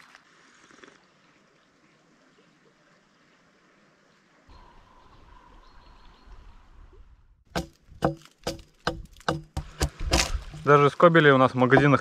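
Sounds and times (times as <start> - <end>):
knife cutting bark off log: 7.5 - 10.7.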